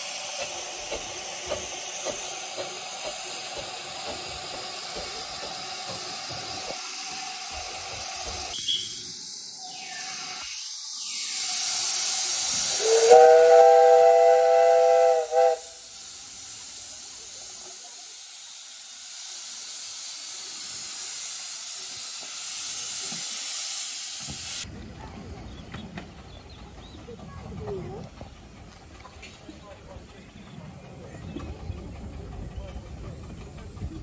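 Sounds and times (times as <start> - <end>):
steam hissing: 0.0 - 24.7
steam locomotive whistle: 8.5 - 9.0, 12.7 - 16.0.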